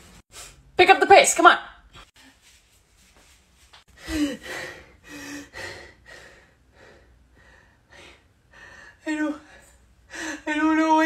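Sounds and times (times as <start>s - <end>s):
woman panting: 3.9s - 10.5s.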